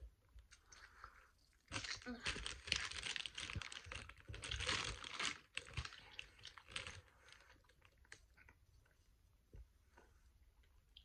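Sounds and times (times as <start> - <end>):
plastic packaging crinkling: 1.6 - 8.6.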